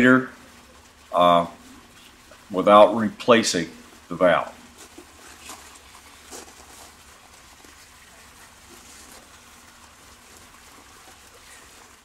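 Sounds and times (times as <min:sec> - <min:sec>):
faint background hiss: 0:00.0 - 0:12.0.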